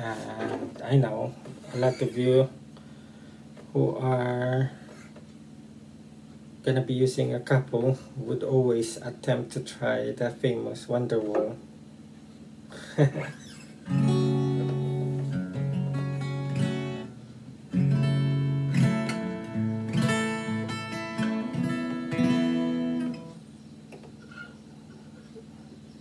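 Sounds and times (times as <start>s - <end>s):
acoustic guitar strummed chords: 13.8s - 23.4s.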